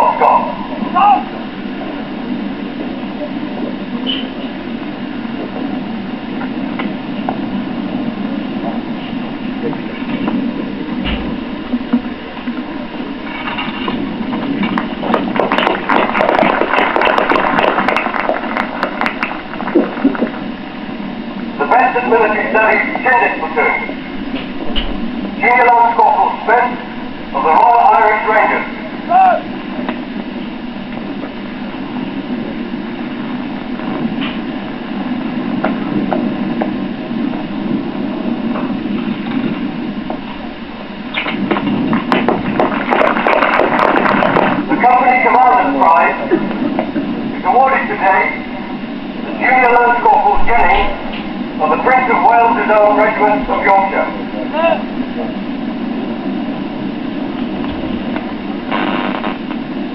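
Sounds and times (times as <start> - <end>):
low background hum and rumble: 0.0 - 59.9
crowd applauding: 15.2 - 19.8, 42.6 - 44.7.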